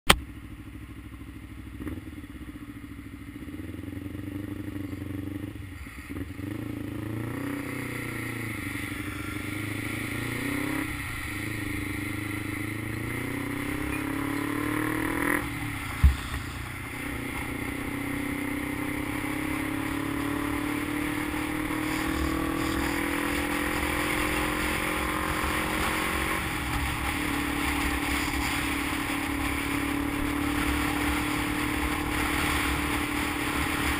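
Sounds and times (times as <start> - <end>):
motorcycle engine accelerating: 0.1 - 33.9
wind and road noise: 0.1 - 33.9
sharp thump: 15.9 - 16.6.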